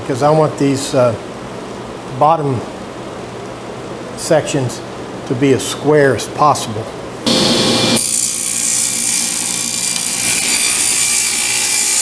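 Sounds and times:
table saw cutting plywood: 7.3 - 12.0.

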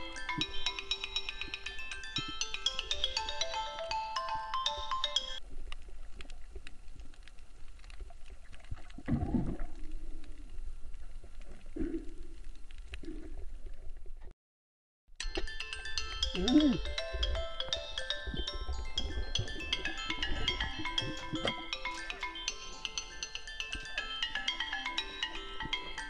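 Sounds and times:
light mallet music: 0.0 - 5.4, 15.2 - 26.0
faint underwater clicks: 5.4 - 14.3
low underwater rumble: 5.4 - 14.3.

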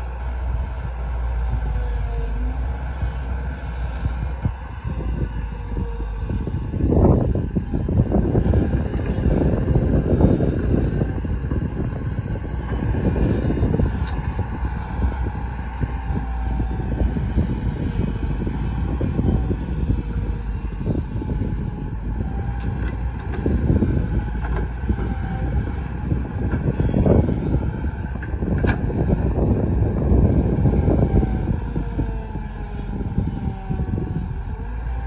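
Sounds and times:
excavator diesel engine working: 0.0 - 35.0.

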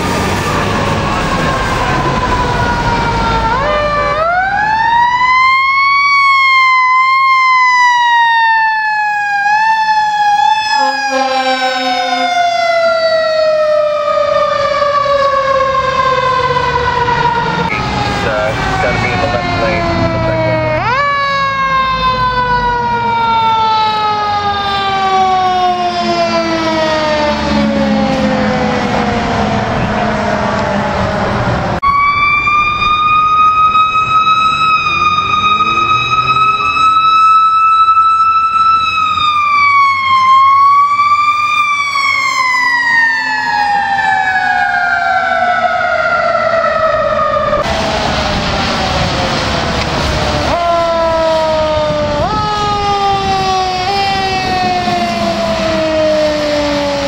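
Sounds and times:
engine rumble: 0.0 - 5.8, 13.3 - 57.0
fire engine siren winding: 0.0 - 57.0.

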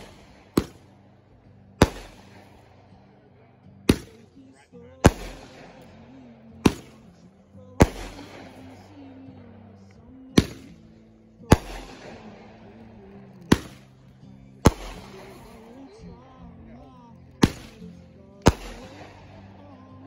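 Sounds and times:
firework shells bursting: 1.8 - 2.6.

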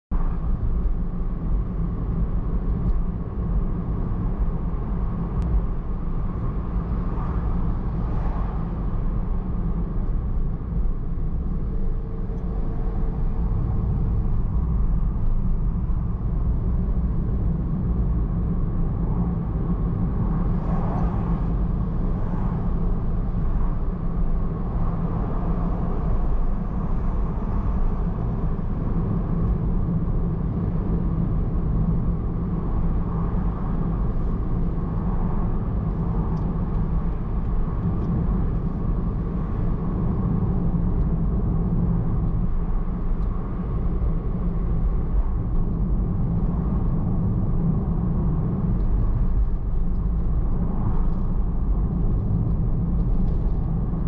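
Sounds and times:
car engine and tyre rumble: 0.1 - 54.0.

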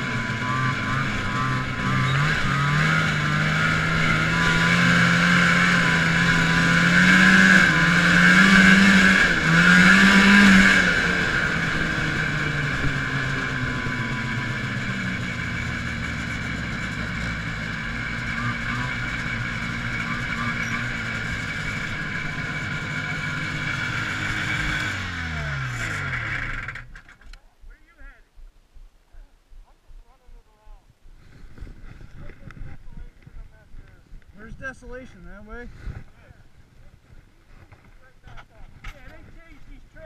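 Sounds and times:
snowmobile engine revving: 0.0 - 27.0.

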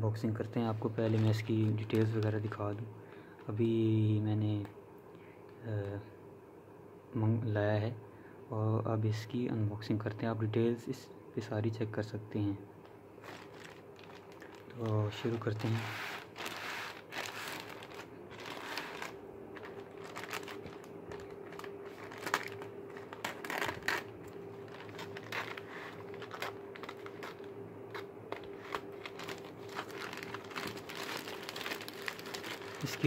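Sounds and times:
faint steady hum: 0.0 - 33.0
plastic bag crinkling: 0.8 - 2.8, 12.8 - 33.0.

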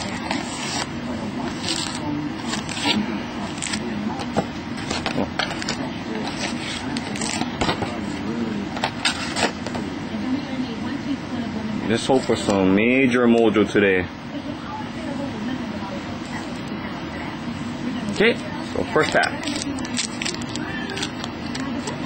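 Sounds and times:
steady low hum: 0.0 - 22.0
foil packs crinkling: 18.9 - 22.0.

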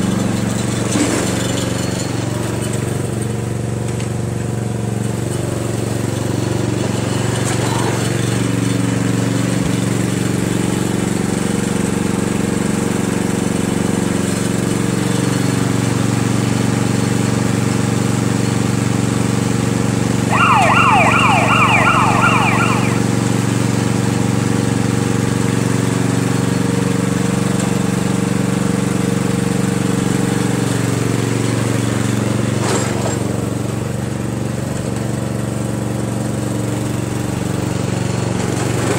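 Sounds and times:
riding lawn mower engine running: 0.0 - 38.9
falling whistle-like tones: 20.3 - 23.1.

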